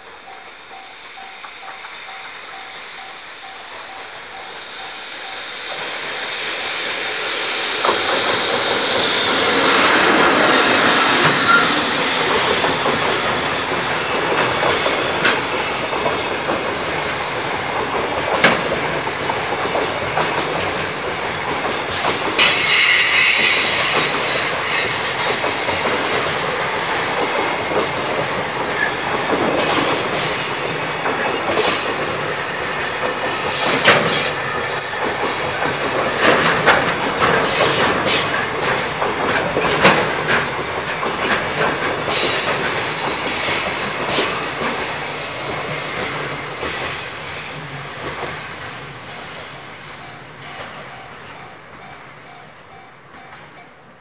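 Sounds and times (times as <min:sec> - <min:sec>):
train wheels clattering on rails: 0:00.0 - 0:54.0
high wheel squeal: 0:04.0 - 0:14.4, 0:22.0 - 0:26.2, 0:31.4 - 0:36.3.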